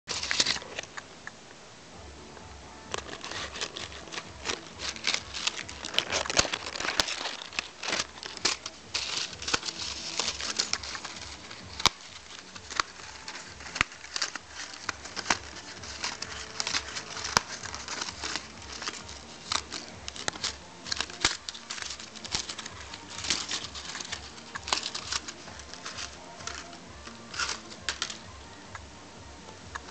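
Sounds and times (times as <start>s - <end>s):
paper crinkling and rustling: 0.1s - 1.0s, 2.9s - 28.6s, 29.6s - 29.9s.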